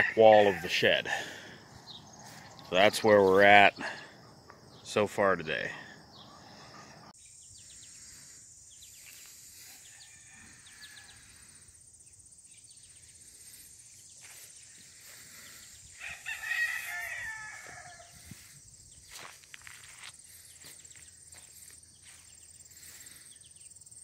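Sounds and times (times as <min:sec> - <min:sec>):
rooster crowing: 0:00.0 - 0:01.6, 0:09.6 - 0:11.4, 0:15.9 - 0:18.3
insects droning: 0:00.0 - 0:24.0.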